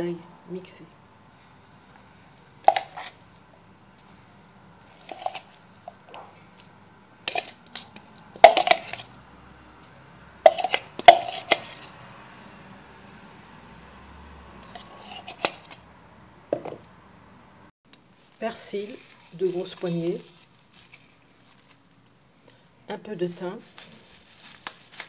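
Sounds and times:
metal spoon clinking against bowl: 19.8 - 20.2.

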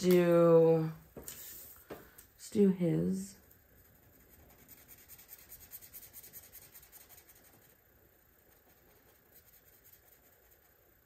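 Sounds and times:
marker scratching on paper: 3.8 - 7.8, 8.5 - 10.9.

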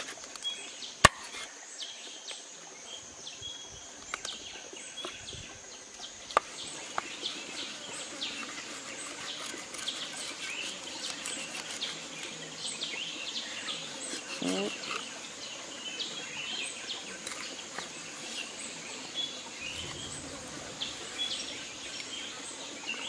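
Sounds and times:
high insect hum: 0.1 - 23.0
birds chirping: 4.1 - 23.0
knife scraping and cutting fish: 6.4 - 12.4, 13.8 - 15.1.

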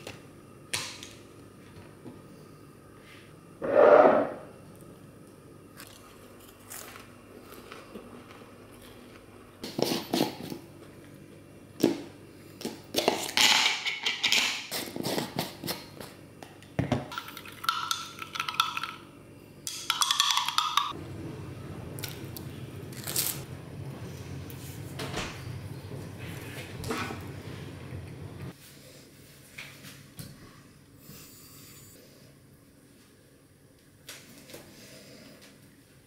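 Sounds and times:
steady hum: 17.2 - 34.1.

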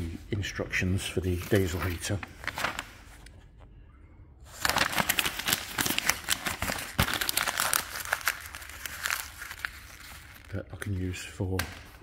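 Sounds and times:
paper and plastic crumpling: 1.2 - 3.4, 4.5 - 11.2.

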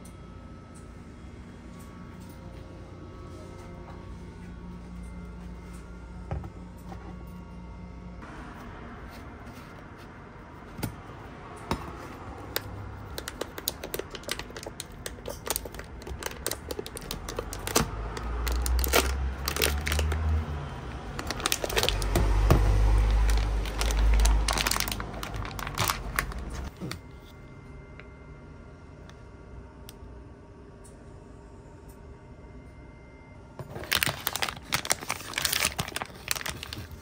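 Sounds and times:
foil and paper crinkling: 12.4 - 20.4, 21.1 - 27.0, 33.6 - 37.0
low rumble: 16.2 - 26.7.

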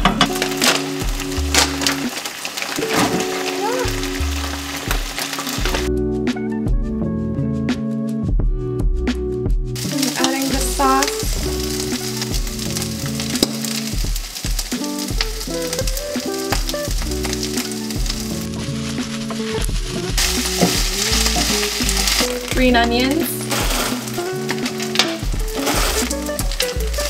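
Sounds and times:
rice sizzling in a frying pan: 0.0 - 5.9, 9.8 - 27.0
wooden spatula stirring: 9.8 - 27.0.

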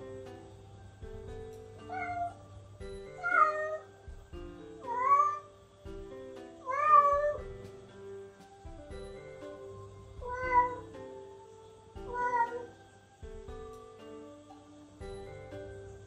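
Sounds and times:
cat meowing: 1.8 - 2.5, 3.1 - 3.9, 4.8 - 5.5, 6.6 - 7.4, 10.2 - 11.0, 12.0 - 12.8.

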